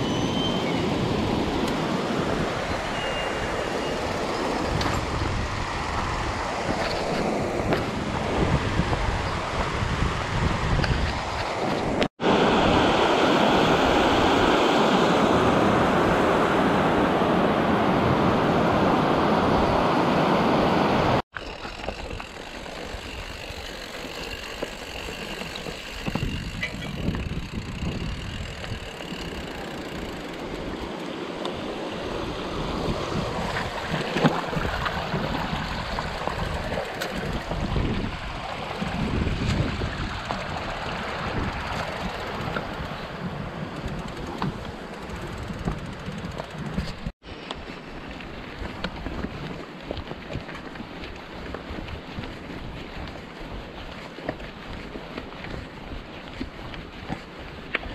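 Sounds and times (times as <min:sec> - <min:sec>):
wind on microphone: 0:00.0 - 0:30.9, 0:31.5 - 0:57.9
tyres rumbling on stony path: 0:21.3 - 0:57.9.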